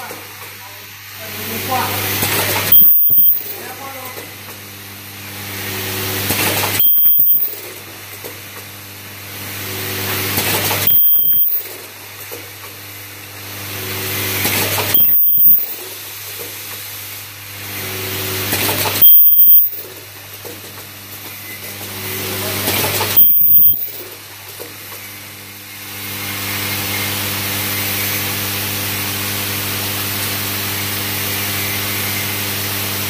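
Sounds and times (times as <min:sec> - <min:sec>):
machine feeders humming: 0:01.2 - 0:03.8, 0:14.9 - 0:15.9, 0:22.0 - 0:24.1.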